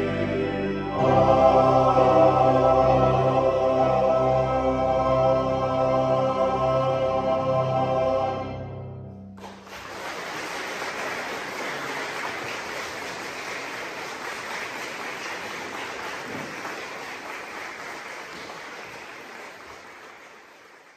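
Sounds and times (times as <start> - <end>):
audience applauding: 9.4 - 20.9.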